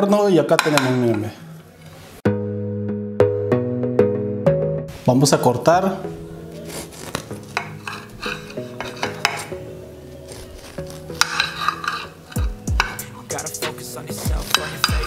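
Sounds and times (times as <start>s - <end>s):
background music: 0.0s - 15.0s
knife scraping a ceramic plate: 6.6s - 9.6s, 10.3s - 13.1s.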